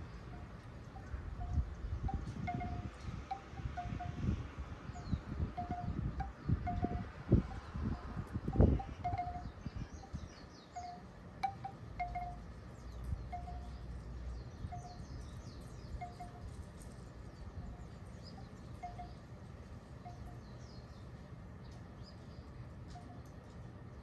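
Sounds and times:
wind on microphone: 1.0 - 10.4.

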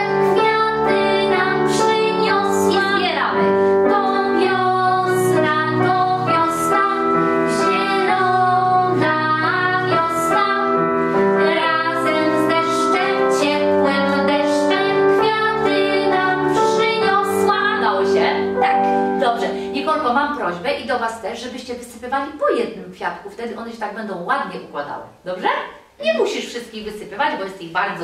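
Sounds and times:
girl singing along: 0.0 - 20.3
digital piano: 0.0 - 21.5
woman singing children's song: 0.0 - 25.0.

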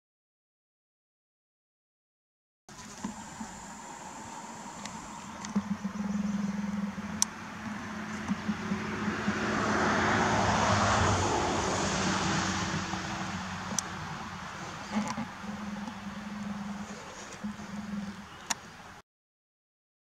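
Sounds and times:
low steady hum: 2.7 - 19.0
vehicle passing by: 2.9 - 18.3
sharp clicks: 4.6 - 8.9, 12.9 - 14.0, 14.7 - 18.7.

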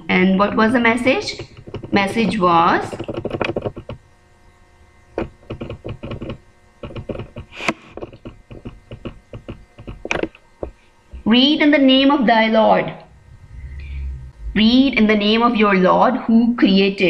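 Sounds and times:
computer mouse clicking: 2.9 - 4.0, 5.2 - 10.8.

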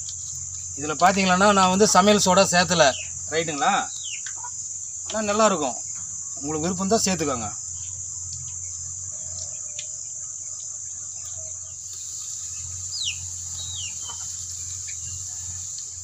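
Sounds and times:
crickets chirring: 0.0 - 16.0
falling bird chirps: 11.2 - 16.0.

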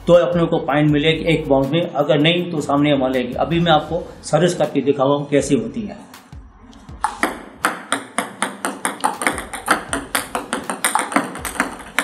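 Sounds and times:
table tennis ball clicking: 7.0 - 12.0.

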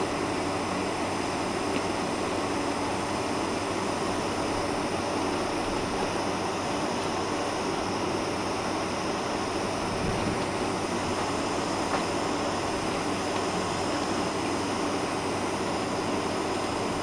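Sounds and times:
airplane cabin rushing hum: 0.0 - 15.2.

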